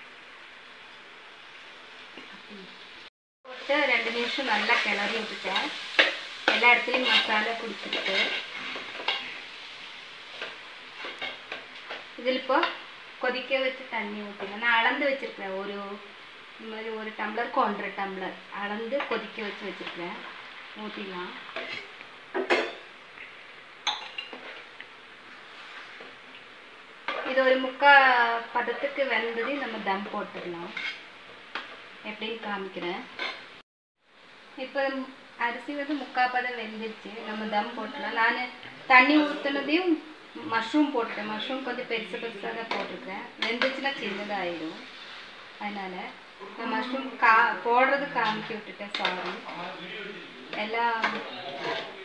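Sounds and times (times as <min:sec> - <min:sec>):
food sizzling: 0:00.0 - 0:52.0
ladle scraping a pot: 0:21.6 - 0:21.9, 0:30.7 - 0:31.0, 0:50.5 - 0:52.0.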